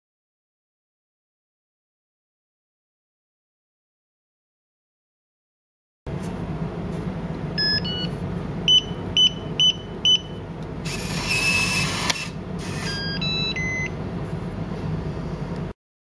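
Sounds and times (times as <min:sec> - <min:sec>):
steady low hum: 0:06.1 - 0:15.8
keypad beeps: 0:07.6 - 0:08.1, 0:08.7 - 0:10.4, 0:12.9 - 0:14.0
lock motor whirring: 0:10.8 - 0:13.2.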